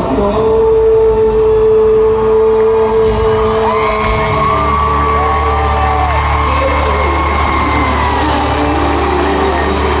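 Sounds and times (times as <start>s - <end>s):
live band music over sound system: 0.0s - 10.0s
crowd: 2.2s - 10.0s.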